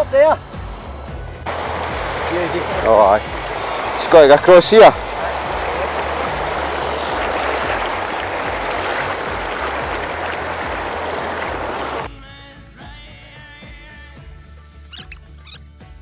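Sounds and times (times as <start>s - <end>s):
river water rushing over stones: 1.5s - 12.1s.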